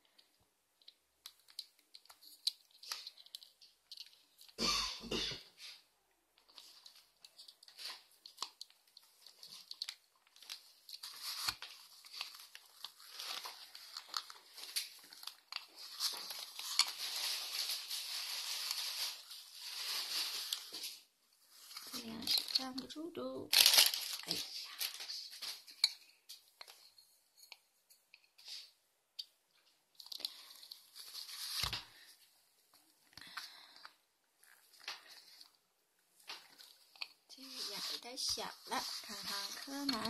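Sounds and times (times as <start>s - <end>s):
plastic rustling: 6.4s - 27.6s, 29.6s - 40.0s.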